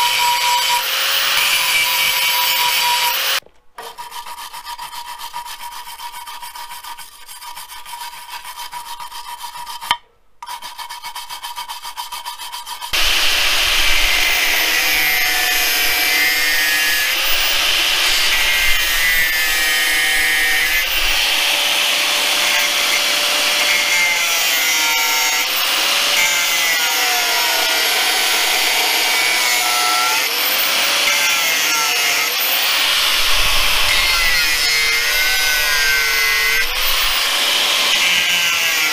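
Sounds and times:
angle grinder on steel: 0.0 - 4.3, 12.9 - 38.9
wire brush scrubbing metal: 10.5 - 30.3, 32.4 - 38.9.

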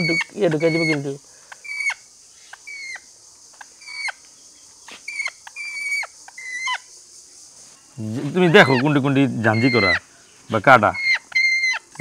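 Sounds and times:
parrot squawking: 0.0 - 2.0, 8.5 - 10.0, 10.9 - 12.0.

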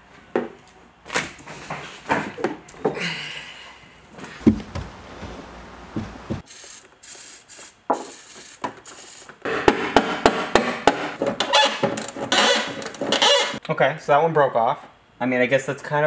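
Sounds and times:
aerosol spray can hissing: 6.4 - 9.3.

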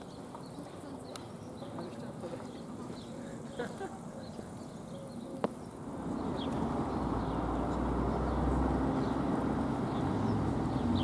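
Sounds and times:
vehicle engine rumble: 4.1 - 11.0.

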